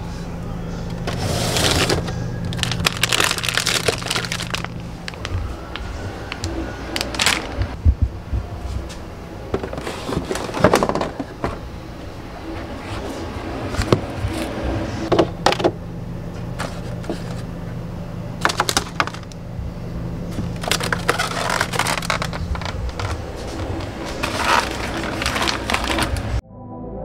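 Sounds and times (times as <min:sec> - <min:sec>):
refrigerator hum: 0:00.0 - 0:26.4
plastic packaging rustling: 0:01.0 - 0:07.8, 0:09.5 - 0:11.4, 0:18.4 - 0:19.4, 0:20.3 - 0:26.4.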